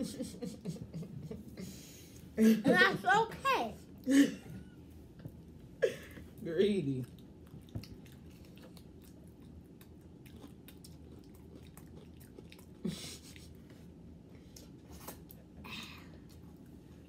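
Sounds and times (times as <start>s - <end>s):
chewing waffle cone: 6.8s - 16.9s.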